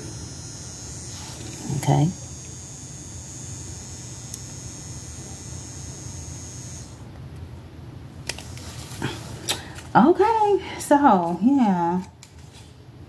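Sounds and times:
electric nail drill whining: 0.0s - 7.0s
low steady hum: 0.0s - 13.0s.

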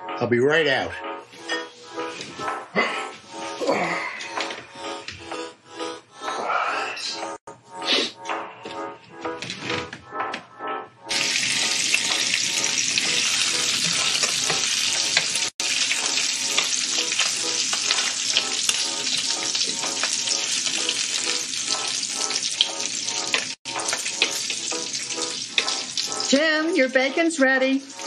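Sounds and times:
bacon sizzling in a frying pan: 11.1s - 28.0s.

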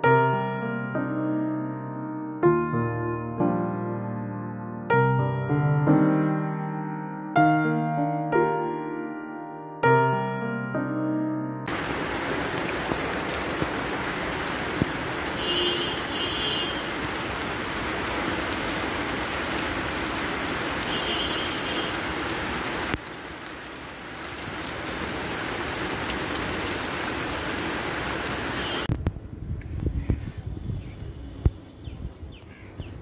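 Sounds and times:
rain on plants and concrete: 11.7s - 30.1s.

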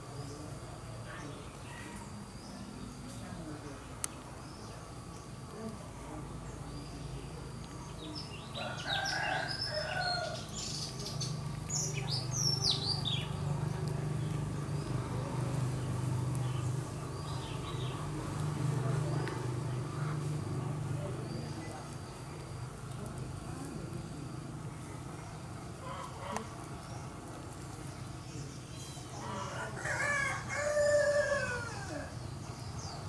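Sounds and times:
bird chirping: 6.5s - 15.0s.

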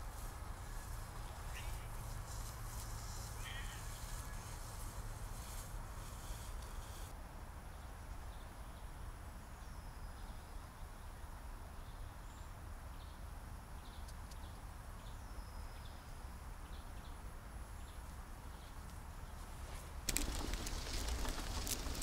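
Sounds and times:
faint bird calls: 0.6s - 4.7s
low wind rumble: 19.1s - 22.0s.

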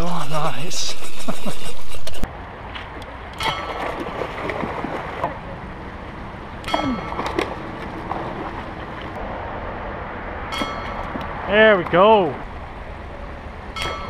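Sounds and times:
moving water: 2.4s - 9.7s
fish splashing in water: 3.4s - 5.5s.

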